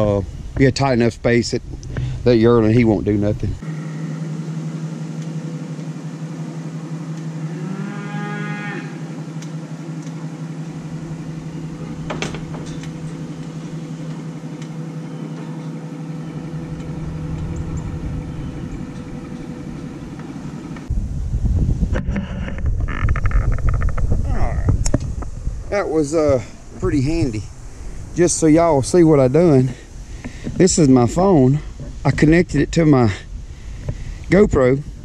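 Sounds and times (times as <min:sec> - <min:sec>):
pickup engine humming: 0:00.0 - 0:21.2, 0:22.6 - 0:35.0
cow mooing: 0:07.3 - 0:09.3.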